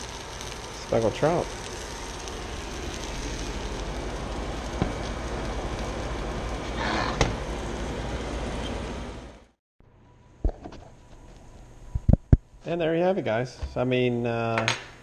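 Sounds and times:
fish sizzling in skillet: 0.0s - 9.1s.

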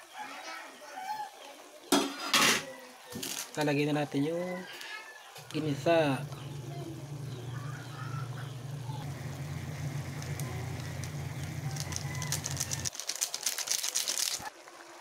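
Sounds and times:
steady low hum: 5.6s - 12.8s
seasoning powder rustling from sachet: 10.2s - 14.6s.

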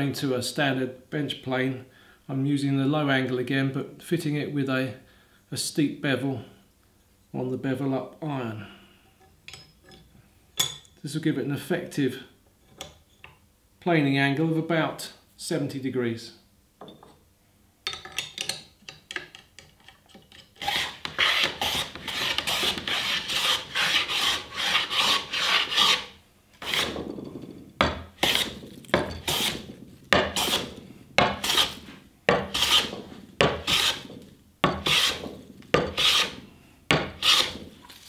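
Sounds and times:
hand plane shaving wood: 20.6s - 27.1s, 28.2s - 36.4s, 37.0s - 37.7s.

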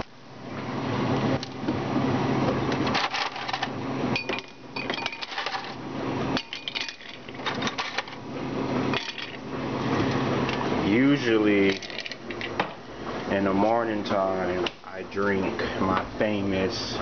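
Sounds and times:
low steady hum: 0.0s - 17.0s
ice cubes clinking into glass: 4.2s - 5.8s, 6.4s - 8.0s.

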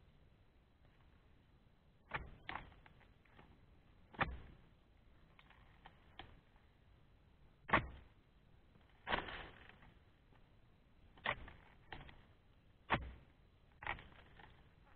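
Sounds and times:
chisel chopping strikes: 2.1s - 2.8s, 4.1s - 4.6s, 7.7s - 8.1s, 12.9s - 14.2s.

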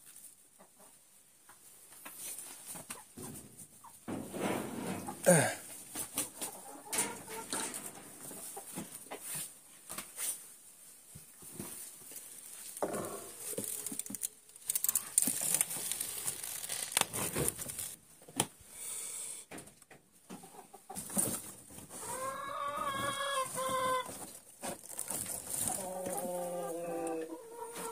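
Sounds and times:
chickens clucking: 0.5s - 10.3s, 20.2s - 27.9s
knocks and rustling: 2.0s - 10.2s
chicken long drawn-out call: 22.0s - 24.1s, 25.7s - 27.9s.

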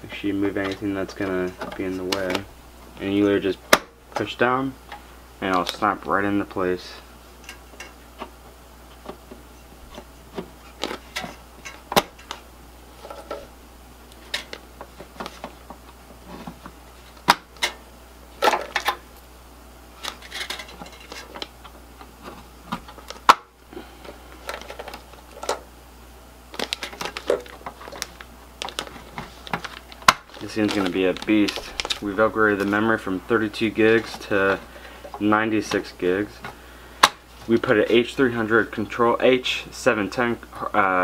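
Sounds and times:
plastic bags crinkling: 26.5s - 35.8s.

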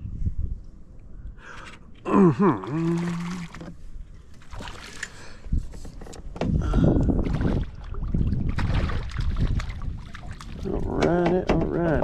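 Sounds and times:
wind buffeting microphone: 0.0s - 0.8s, 5.4s - 12.0s.

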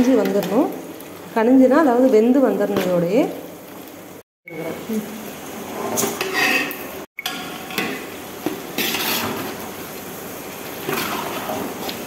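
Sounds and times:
frying mixture sizzling: 0.0s - 12.0s
metal spatula scraping pot: 5.8s - 9.6s, 10.8s - 12.0s.

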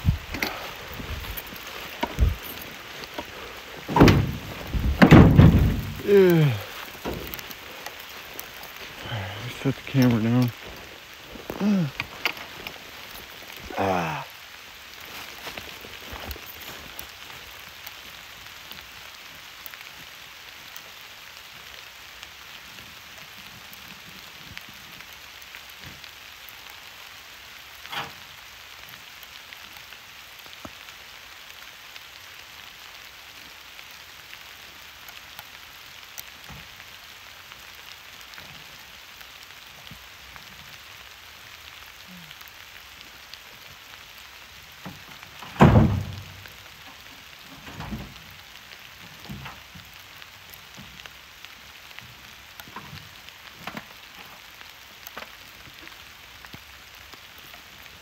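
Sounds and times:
steady rain falling: 0.0s - 58.0s
loud thump: 3.9s - 6.0s, 45.5s - 46.2s.

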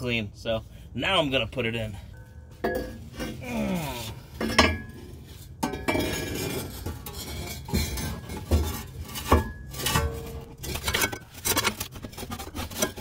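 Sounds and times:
metal tailpipe clanking: 2.2s - 3.4s, 4.3s - 13.0s
tailpipe rubbing and scraping: 2.6s - 13.0s.

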